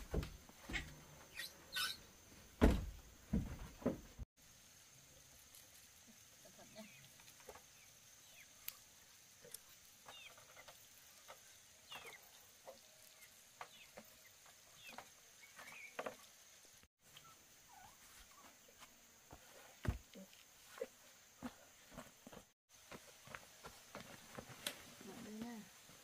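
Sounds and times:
chickens peeping: 17.1s - 18.5s.

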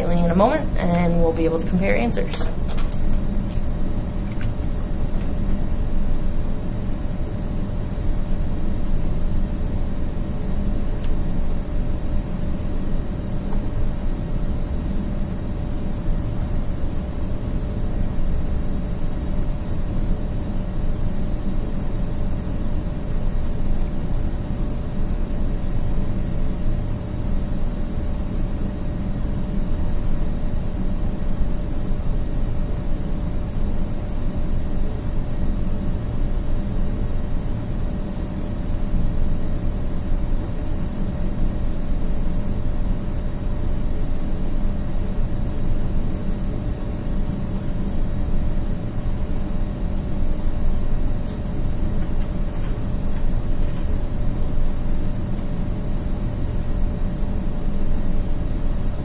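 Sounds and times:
background rumble and hiss: 0.0s - 59.0s
constant hum: 0.0s - 59.0s.

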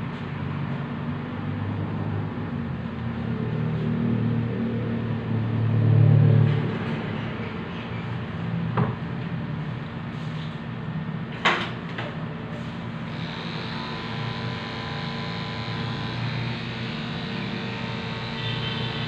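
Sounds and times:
electric clipper buzzing: 13.1s - 19.0s.

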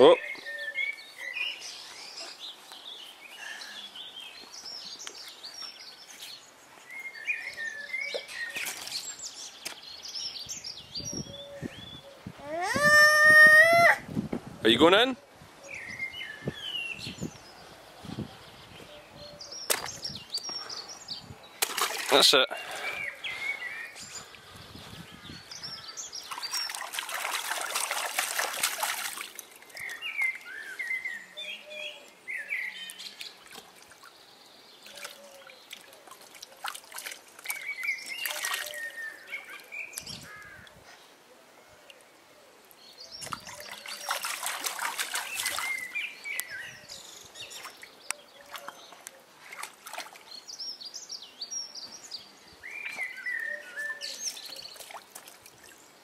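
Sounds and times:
birds chirping: 0.0s - 13.8s, 14.6s - 56.0s
water splashing in paddling pool: 21.6s - 23.0s, 26.2s - 30.2s, 34.8s - 40.1s, 43.2s - 46.1s, 47.5s - 50.5s, 54.2s - 56.0s.

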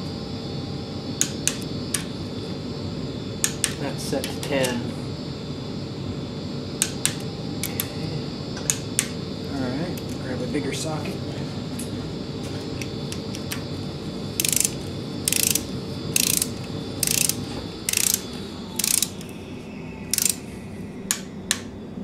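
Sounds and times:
ratchet wrench clicking: 14.4s - 18.2s, 18.8s - 19.3s, 20.1s - 20.4s.

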